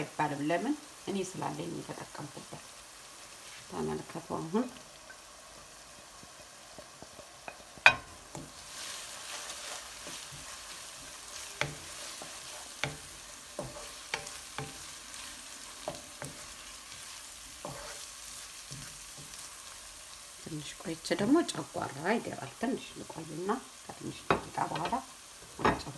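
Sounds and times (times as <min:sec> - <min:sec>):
food sizzling in a pan: 0:00.0 - 0:25.9
spoon knocking and scraping pan: 0:06.8 - 0:19.5, 0:23.9 - 0:25.9.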